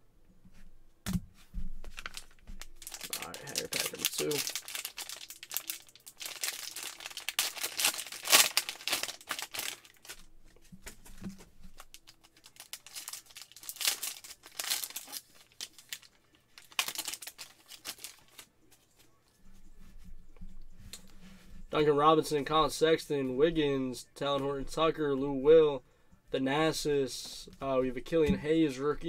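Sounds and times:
foil wrapper crinkling and tearing: 1.9s - 10.3s, 11.7s - 18.4s.

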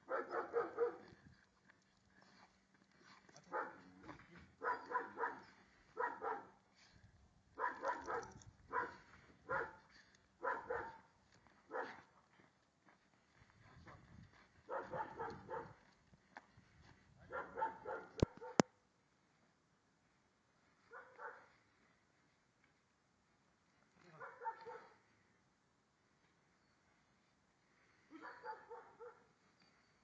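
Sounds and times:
dog barking: 0.0s - 1.1s, 3.4s - 3.9s, 4.6s - 6.6s, 7.6s - 11.1s, 11.7s - 12.1s, 14.7s - 15.8s, 17.3s - 18.7s, 20.9s - 21.6s, 24.2s - 25.0s, 28.1s - 29.3s.

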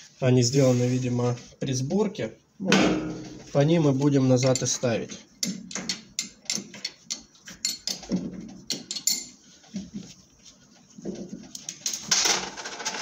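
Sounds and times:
metallic clicks and knocks: 4.4s - 9.3s.

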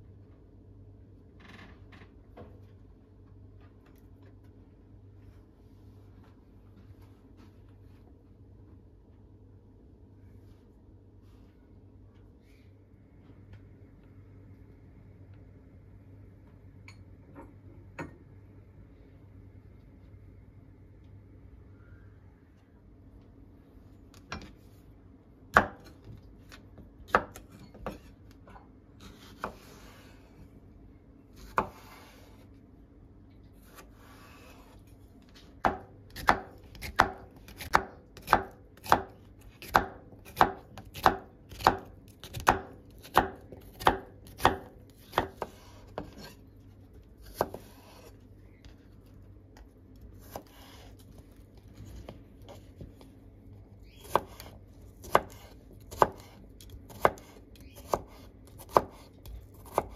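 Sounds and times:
knife chopping on wooden board: 25.5s - 26.0s, 27.1s - 28.1s, 31.4s - 32.3s, 35.6s - 46.4s, 47.2s - 48.1s, 50.2s - 51.0s, 54.0s - 59.9s.

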